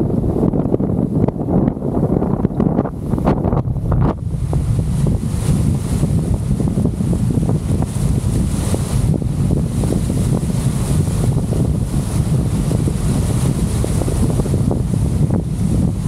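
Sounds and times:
choppy water rushing: 0.0 - 16.0
wind buffeting microphone: 0.0 - 16.0.

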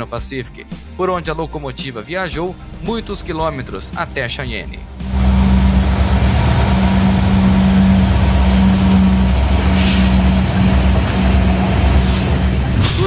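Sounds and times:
diesel locomotive engine droning: 2.4 - 13.0
train wheels rumbling on rails: 2.5 - 13.0.

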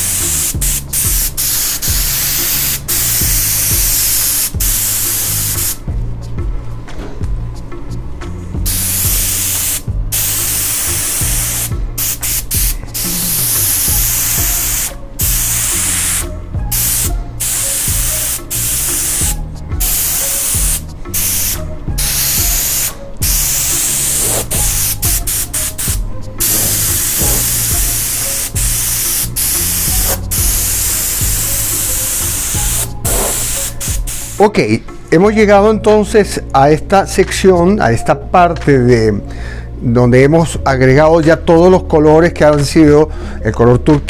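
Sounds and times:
airbrush hissing: 0.0 - 5.8, 8.6 - 34.4.

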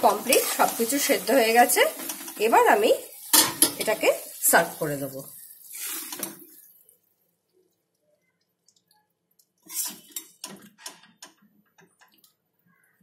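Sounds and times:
metal spatula scraping pan: 9.6 - 10.6.

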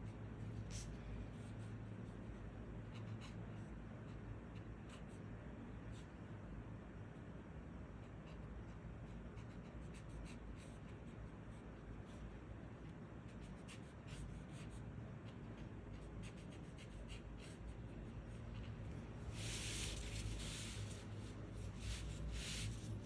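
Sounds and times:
low background hum: 0.0 - 23.0
brush pen stroking paper: 18.6 - 23.0.

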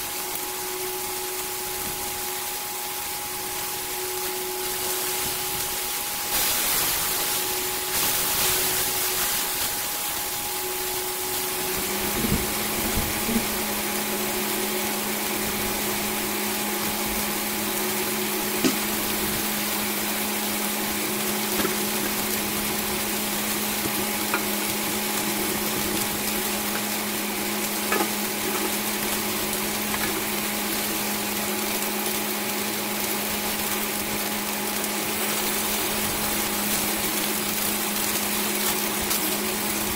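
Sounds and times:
low hum: 0.0 - 31.9
bacon sizzling in frying pan: 0.0 - 39.9.

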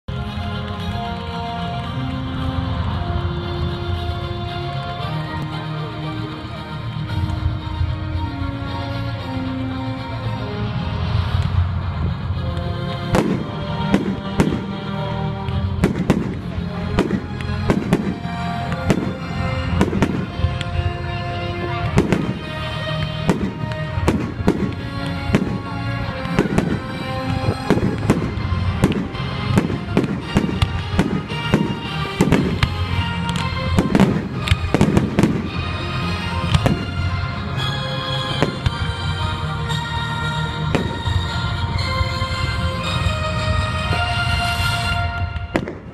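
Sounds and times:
music: 0.0 - 45.9
fireworks bangs: 13.0 - 14.9, 15.5 - 39.1, 40.7 - 41.8, 45.0 - 45.9.

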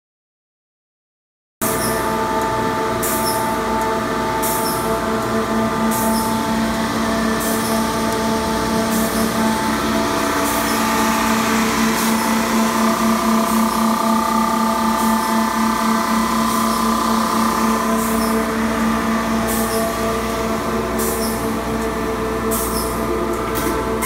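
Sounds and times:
belt grinder humming: 5.7 - 24.0.

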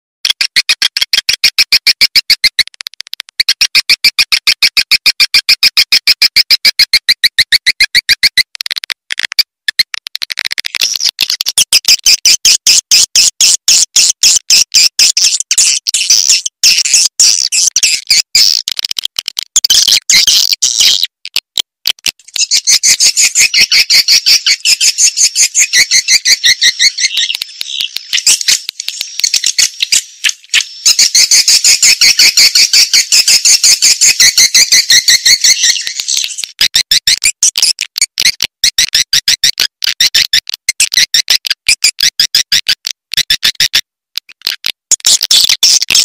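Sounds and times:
high bird twittering chatter: 11.0 - 18.6, 22.2 - 36.7
sharp bird chirps: 11.0 - 18.6, 22.2 - 37.8.

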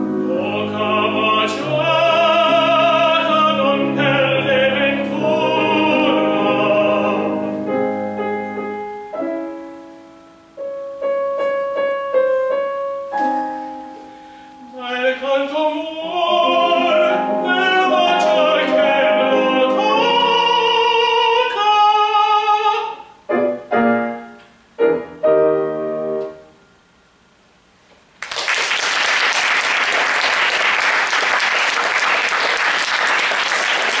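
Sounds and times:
tenor singing opera: 0.0 - 8.2, 14.6 - 23.3
grand piano: 0.0 - 34.0
audience applauding: 28.2 - 34.0.

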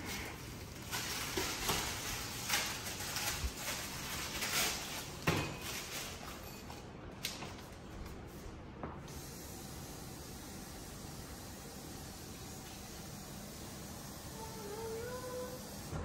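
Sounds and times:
noodle packet crinkling and tearing: 0.0 - 6.2.

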